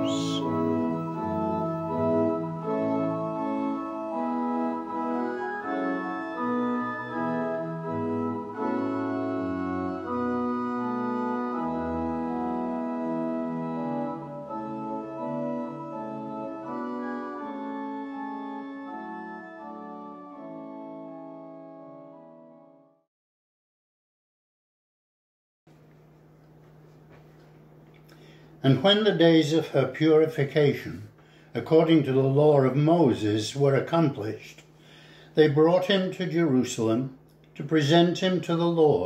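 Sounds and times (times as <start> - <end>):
organ playing held chords: 0.0 - 23.0, 28.2 - 39.0.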